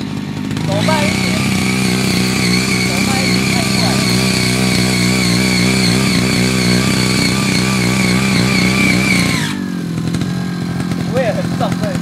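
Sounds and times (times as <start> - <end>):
tiller engine running under load: 0.0 - 12.0
tilling blades churning soil: 0.0 - 12.0
steady high whine: 0.6 - 10.0.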